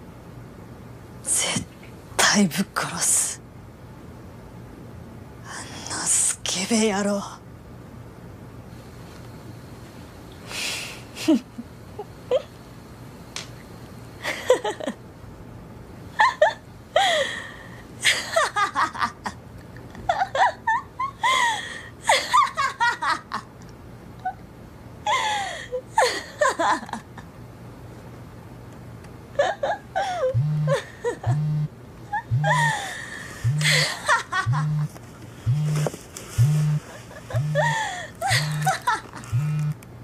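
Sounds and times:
low pulsing beat: 30.4s - 31.7s, 32.3s - 32.8s, 33.4s - 33.9s, 34.5s - 34.9s, 35.5s - 38.7s, 39.3s - 39.8s
high-pitched laughter: 32.2s - 32.8s, 36.8s - 39.4s.

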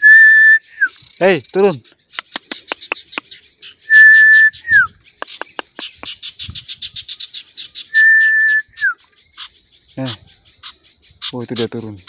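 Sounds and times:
whistle with downward slide: 0.0s - 0.9s, 3.9s - 4.9s, 7.9s - 9.0s
insects ticking: 0.0s - 12.0s.

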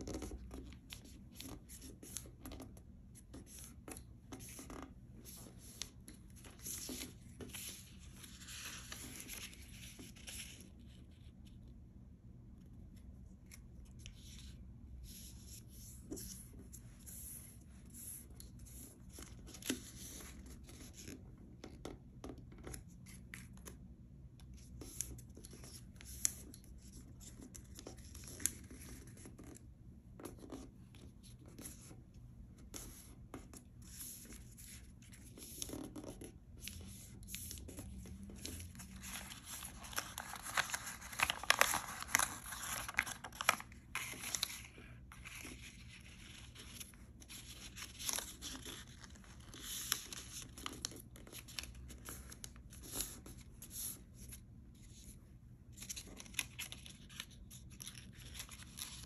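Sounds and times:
paper rustling and crinkling: 0.0s - 11.6s, 33.8s - 55.1s, 55.7s - 59.0s.

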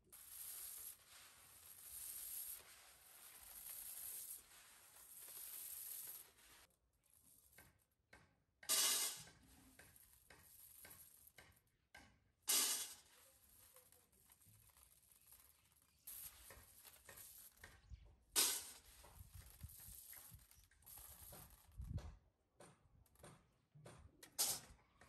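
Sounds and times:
beans rattling across tray: 0.0s - 7.8s, 8.7s - 11.5s, 12.5s - 17.8s, 18.4s - 21.8s
beans clicking: 0.1s - 8.0s, 8.6s - 11.8s.

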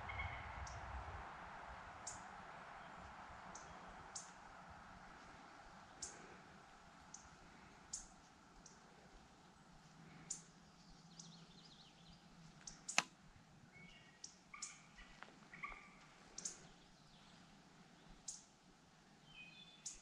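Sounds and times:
sharp clicks: 12.6s - 13.2s.

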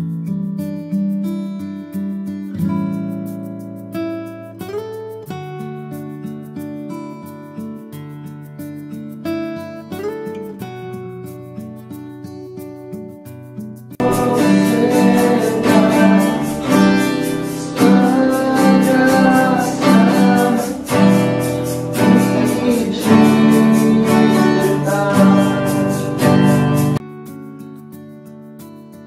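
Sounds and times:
acoustic guitar strumming: 0.0s - 29.0s
person singing: 14.0s - 27.0s.

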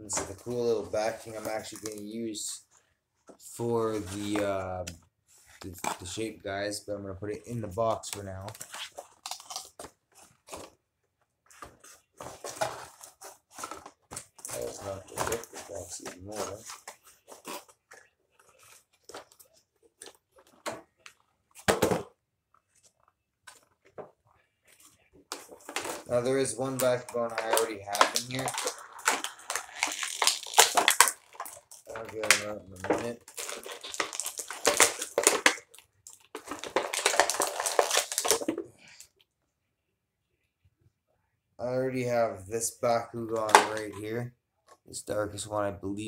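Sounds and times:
toy packaging crinkling: 25.4s - 38.5s.

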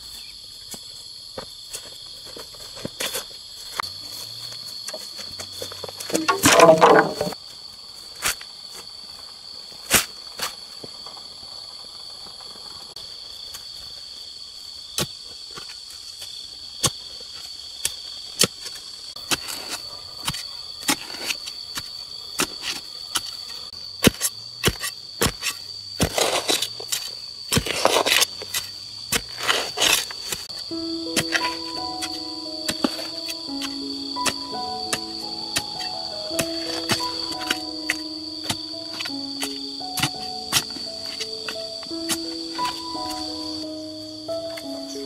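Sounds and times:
insects chirring: 0.0s - 45.0s
rustling or scraping: 1.7s - 7.4s.

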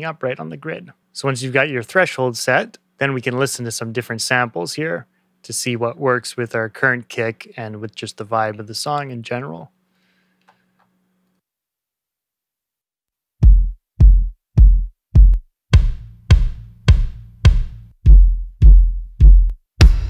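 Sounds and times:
acoustic kick drum hits: 13.4s - 20.0s.

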